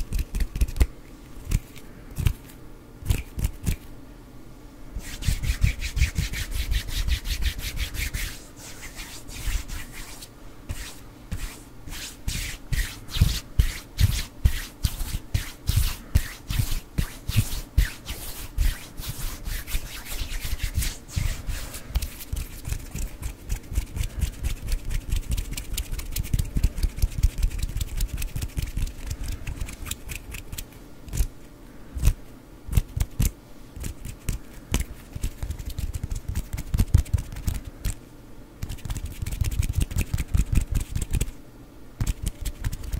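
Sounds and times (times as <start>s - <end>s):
hands rubbing together: 5.0s - 30.7s.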